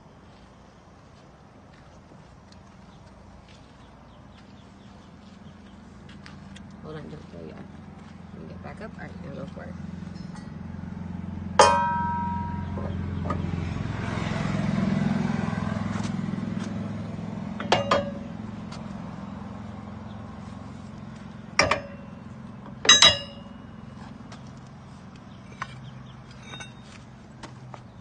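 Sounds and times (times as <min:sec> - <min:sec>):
vehicle engine running: 0:00.0 - 0:28.0
sharp metallic clinks: 0:10.1 - 0:10.8, 0:11.6 - 0:13.4, 0:17.6 - 0:18.4, 0:21.6 - 0:23.9, 0:25.4 - 0:27.1.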